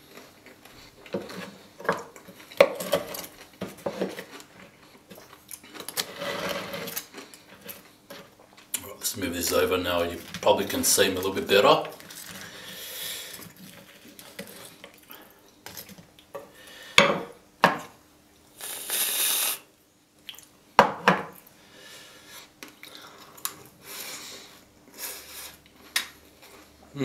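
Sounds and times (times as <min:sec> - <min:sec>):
knife and fork scraping wooden board: 0:06.0 - 0:07.0.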